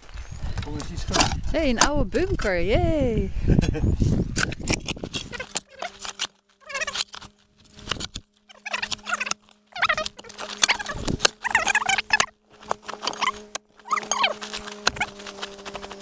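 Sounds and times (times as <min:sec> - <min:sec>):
spade scraping stones and soil: 0:04.1 - 0:16.0.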